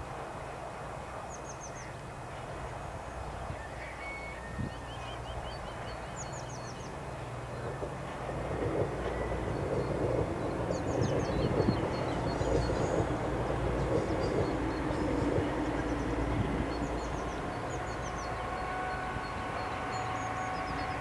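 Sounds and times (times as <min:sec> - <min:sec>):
diesel locomotive engine: 0:00.0 - 0:21.0
small birds chirping: 0:09.2 - 0:21.0.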